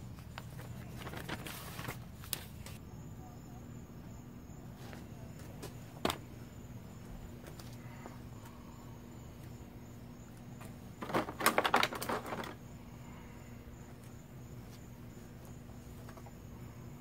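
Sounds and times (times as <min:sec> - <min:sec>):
steady low hum: 0:00.0 - 0:17.0
plastic parts clicking and rattling: 0:11.0 - 0:12.6.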